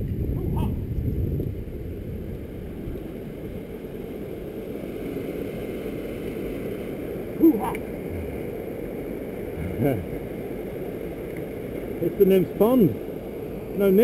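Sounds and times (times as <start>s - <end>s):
wind buffeting microphone: 0.0s - 4.6s.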